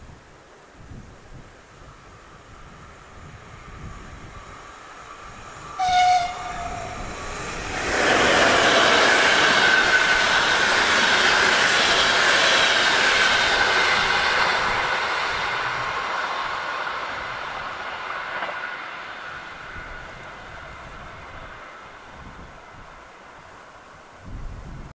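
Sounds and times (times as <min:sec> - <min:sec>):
train wheels rushing on rail: 0:00.8 - 0:24.8
locomotive horn blast: 0:05.8 - 0:07.0.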